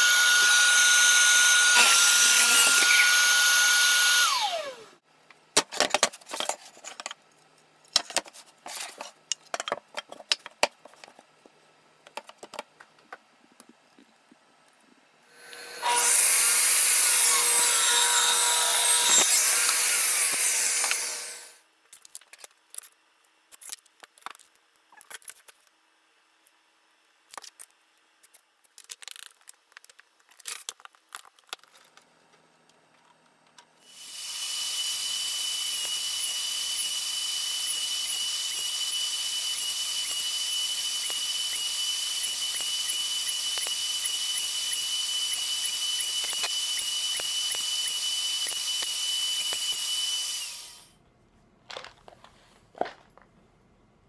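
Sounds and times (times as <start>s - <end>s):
power saw running: 0.0s - 5.0s, 15.4s - 21.6s
table saw motor whining: 0.0s - 5.0s, 15.3s - 21.6s, 33.9s - 50.9s.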